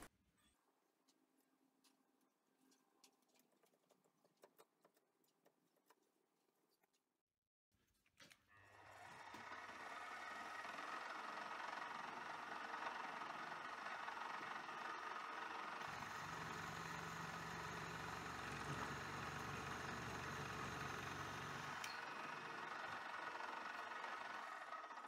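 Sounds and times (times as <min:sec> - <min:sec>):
milling motor whine: 0:08.7 - 0:25.0.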